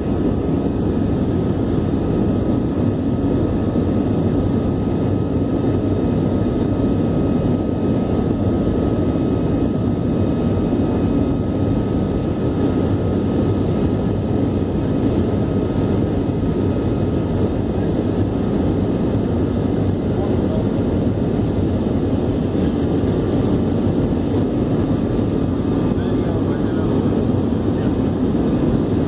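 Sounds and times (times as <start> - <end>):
jet engines and rushing air: 0.0 - 29.0.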